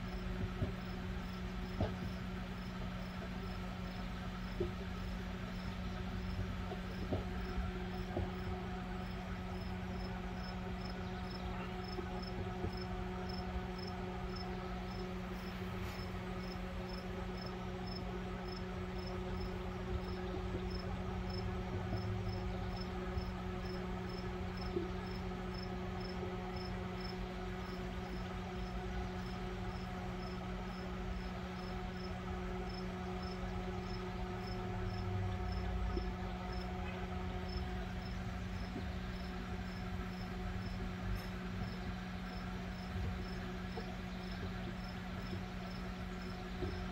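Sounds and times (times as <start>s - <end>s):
cricket chirping: 37.4s - 40.8s.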